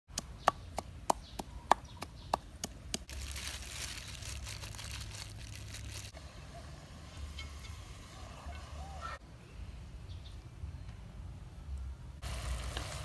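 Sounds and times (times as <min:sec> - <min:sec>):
gloved hands kneading raw chicken: 0:00.2 - 0:06.1.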